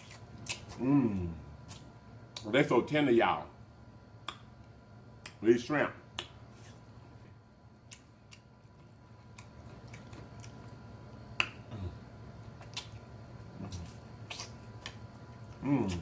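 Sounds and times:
lip smacks while chewing: 0.0s - 0.8s, 4.2s - 5.4s, 7.8s - 16.0s
faint low hum: 0.0s - 16.0s.

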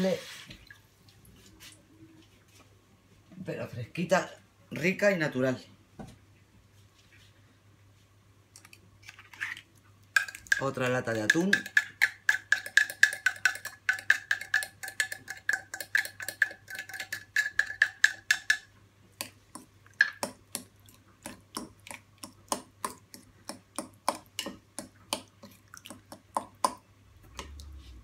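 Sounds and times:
fork mixing food in dish: 9.1s - 28.0s
fork tapping on metal can: 10.2s - 18.7s.

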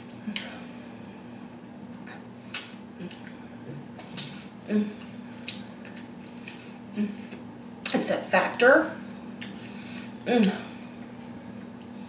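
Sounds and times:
steady low hum: 0.0s - 12.0s
chewing clicks and wet smacks: 5.4s - 6.6s.

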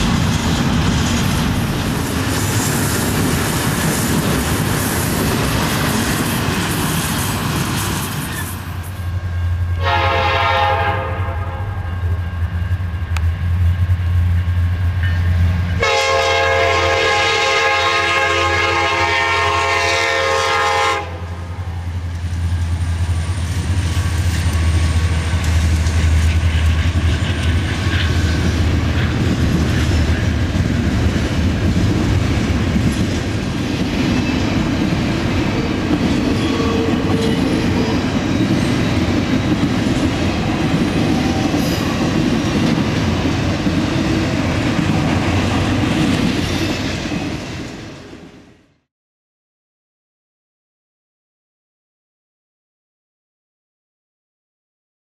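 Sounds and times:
train cars clattering: 0.0s - 9.2s, 22.0s - 47.9s
train wheels on rails: 0.0s - 48.6s
locomotive air horn: 9.7s - 12.3s, 15.8s - 21.5s.

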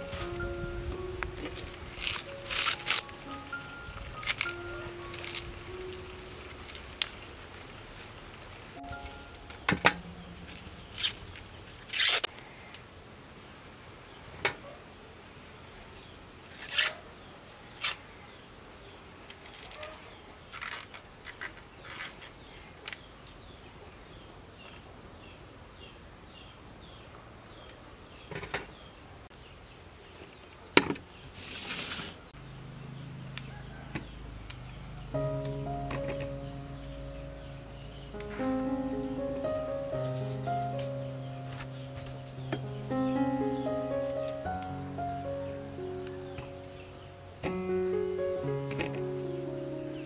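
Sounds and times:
corn husks rustling and tearing: 1.3s - 9.3s, 10.3s - 12.3s, 19.3s - 22.5s.

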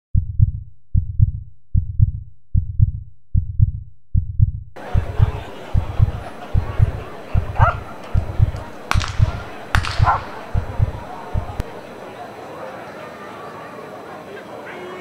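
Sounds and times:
heartbeat double thump: 0.2s - 11.8s
outdoor background noise: 4.8s - 15.0s.

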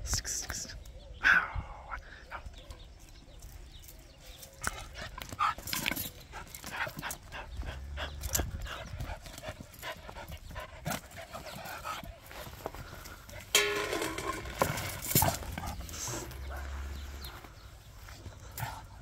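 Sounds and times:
dog panting: 6.2s - 12.6s.

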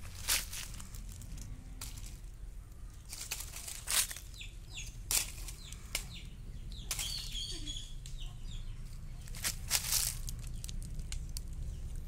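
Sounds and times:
dry leaves crunching: 0.0s - 7.8s, 8.8s - 12.0s
faint bird chirps: 4.0s - 9.4s.

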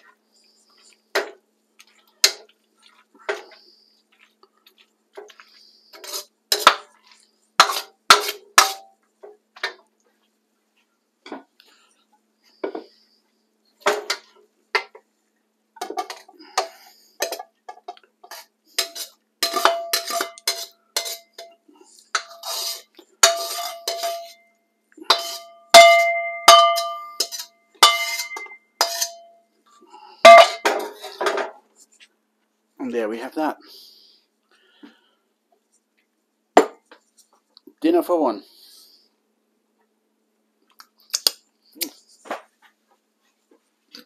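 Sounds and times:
spatula clanking and scraping wok: 2.2s - 2.5s, 5.9s - 9.8s, 13.8s - 15.0s, 15.8s - 29.4s, 30.2s - 31.6s.

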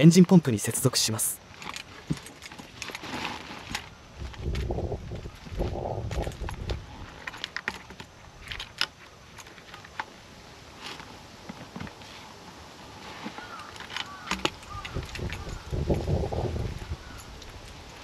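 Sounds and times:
hose fittings clicking and rattling: 13.5s - 18.0s.

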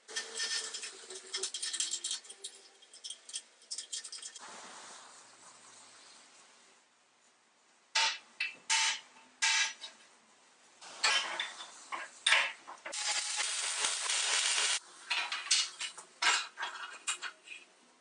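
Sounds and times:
steel scraping: 0.0s - 4.4s, 12.9s - 14.8s.

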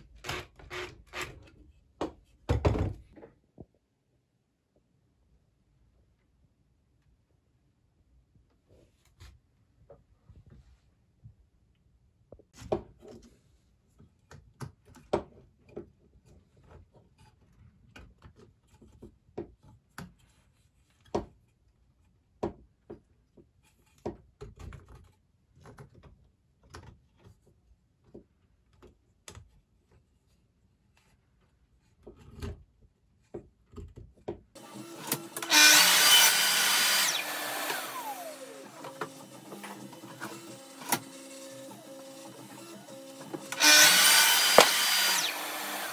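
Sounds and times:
table saw motor: 34.6s - 45.9s.

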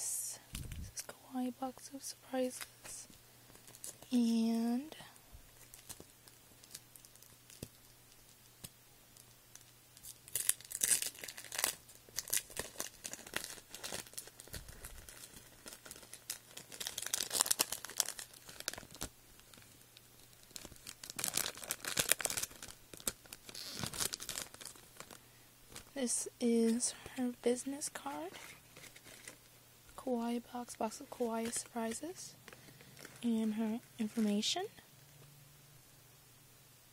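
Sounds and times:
tissue paper crinkling: 5.5s - 8.4s, 9.2s - 26.0s, 28.0s - 29.6s, 30.9s - 34.4s.

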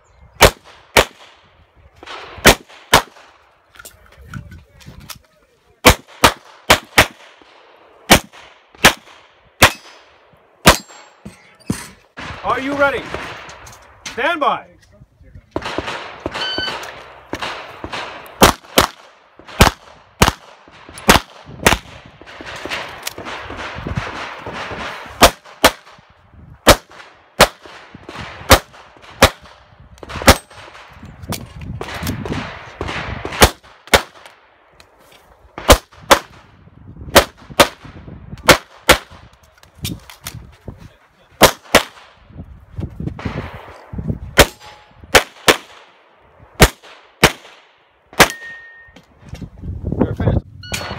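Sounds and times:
rustling noise: 42.3s - 44.3s.

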